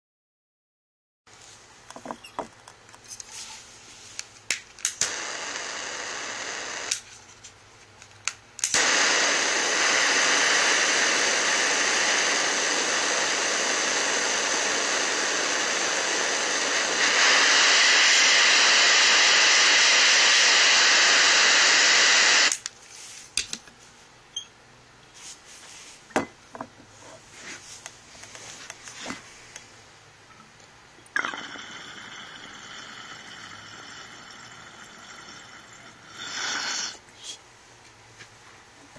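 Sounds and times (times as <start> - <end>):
butane torch hissing: 4.9 - 7.1, 8.6 - 22.6, 31.1 - 37.4.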